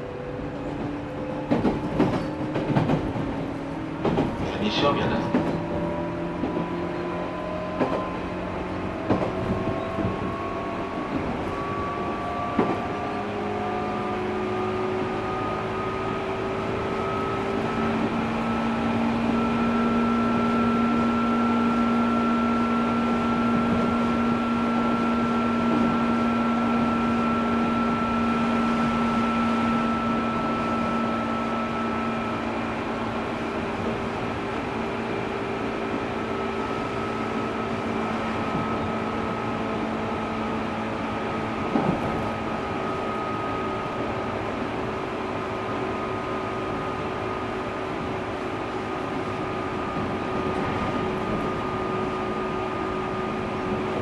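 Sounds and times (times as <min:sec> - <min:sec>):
constant train rumble: 0:00.0 - 0:54.0
electric train motor whine: 0:05.7 - 0:54.0.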